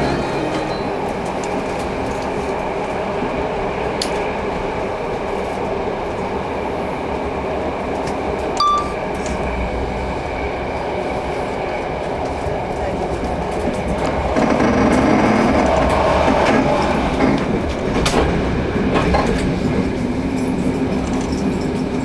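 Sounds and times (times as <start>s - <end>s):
train running noise inside carriage: 0.0s - 22.0s
brief high-pitched tone: 8.6s - 9.1s.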